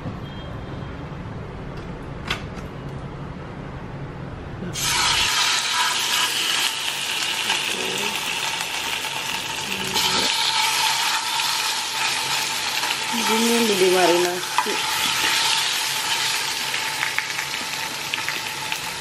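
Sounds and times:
chicken sizzling in hot oil: 0:04.8 - 0:19.0.

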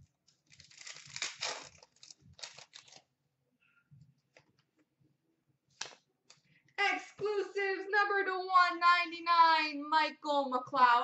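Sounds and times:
plastic wrapper tearing and crinkling: 0:00.3 - 0:03.1.

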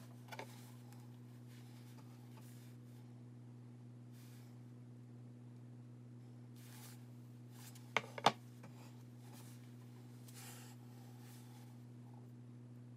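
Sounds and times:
low steady hum: 0:00.0 - 0:12.9
soft rustling: 0:06.6 - 0:11.8.

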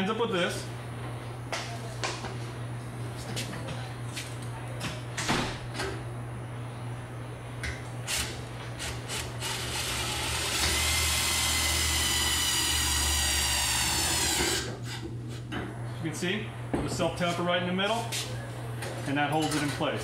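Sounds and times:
drill driving screw into metal: 0:09.4 - 0:14.7.

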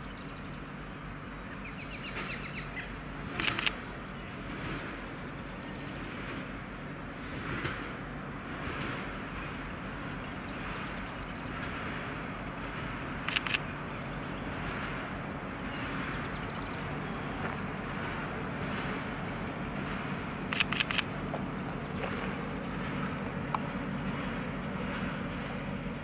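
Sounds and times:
freight train rumbling past: 0:00.0 - 0:26.0
sharp clicks: 0:03.4 - 0:03.8, 0:13.3 - 0:13.6, 0:20.5 - 0:21.1.

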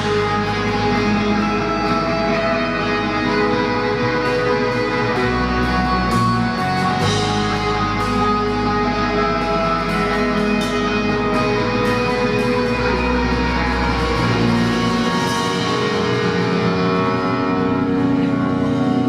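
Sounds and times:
rock band playing: 0:00.0 - 0:19.0.

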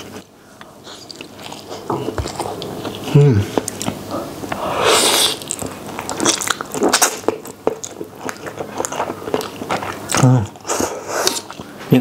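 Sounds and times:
person slurping noodles: 0:04.5 - 0:05.6, 0:08.5 - 0:11.6
wet chewing smacks: 0:05.3 - 0:11.8.

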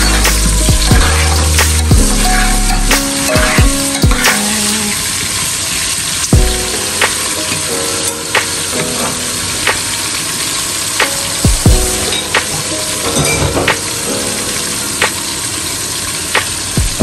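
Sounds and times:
onions sizzling in oil: 0:00.0 - 0:13.2.

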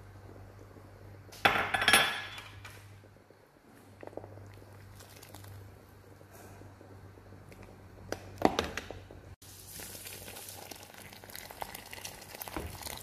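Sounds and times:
sauce bubbling: 0:03.0 - 0:08.4, 0:09.4 - 0:13.0.

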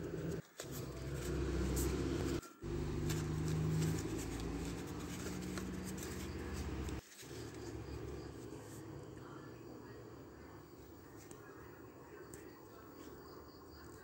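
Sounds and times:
hands handling cardboard: 0:00.4 - 0:07.8.

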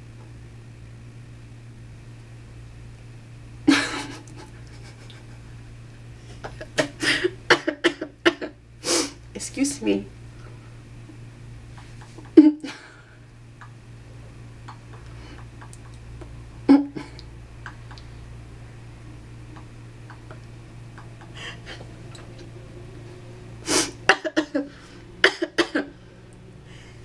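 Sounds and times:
low steady hum: 0:00.0 - 0:27.0
stifled laughter: 0:03.7 - 0:05.6.

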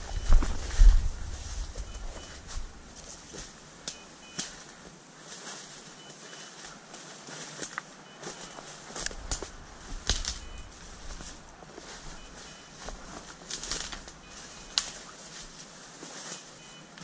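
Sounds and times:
brushing through undergrowth: 0:00.0 - 0:17.0
footsteps crunching dry leaves: 0:00.0 - 0:17.0
twigs snapping: 0:08.9 - 0:10.5, 0:13.2 - 0:15.1.

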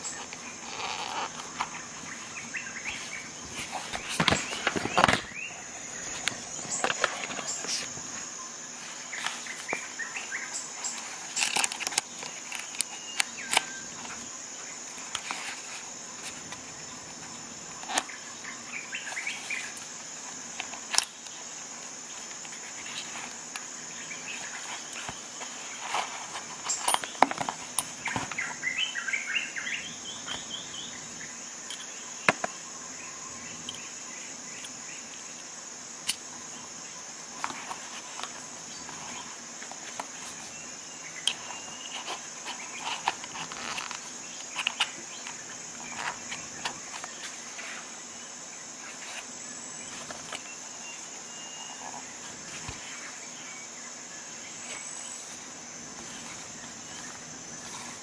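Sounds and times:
steady high-pitched hiss: 0:00.0 - 0:58.0.

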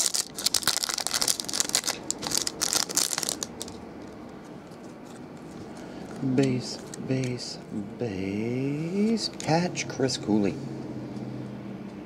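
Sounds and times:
plastic wrapping crinkling: 0:00.0 - 0:03.8.

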